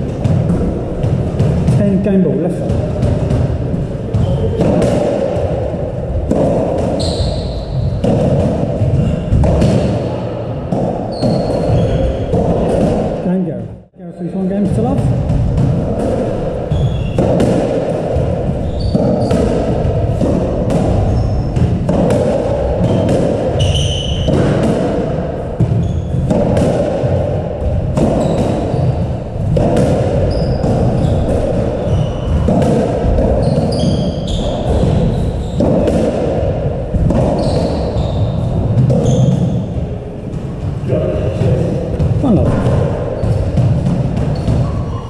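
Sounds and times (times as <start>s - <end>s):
squash ball smacking: 0.0s - 2.0s, 2.6s - 13.3s, 14.6s - 45.0s
shoes squeaking on wooden floor: 6.9s - 8.1s, 11.1s - 12.8s, 16.3s - 17.2s, 18.5s - 19.6s, 22.8s - 24.3s, 25.7s - 26.3s, 28.1s - 29.0s, 30.2s - 32.6s, 33.2s - 35.6s, 37.1s - 39.7s, 44.2s - 45.0s.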